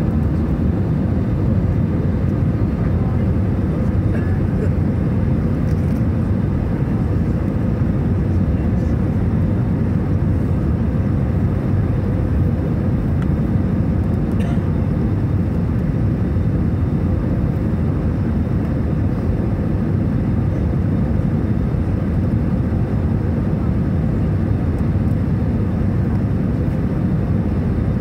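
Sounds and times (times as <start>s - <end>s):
jet engines rumbling: 0.0s - 28.0s.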